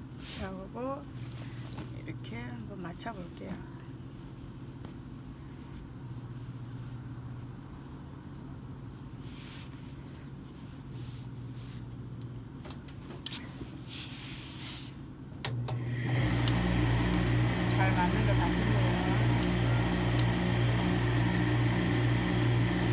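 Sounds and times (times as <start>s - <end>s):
steady low hum: 0.0s - 22.9s
fabric rustling: 4.3s - 15.1s.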